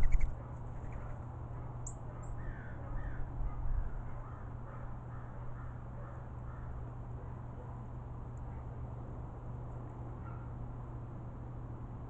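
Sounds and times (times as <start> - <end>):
crows cawing: 2.4 - 3.3.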